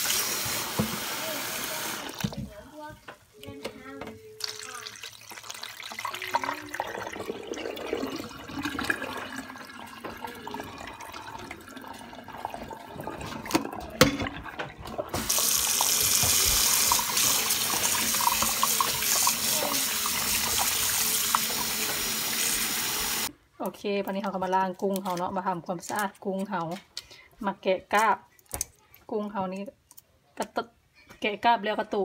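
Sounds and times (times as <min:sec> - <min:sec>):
water splashing in steel bowl: 0:04.4 - 0:23.3
tap running into bowl: 0:12.4 - 0:23.3.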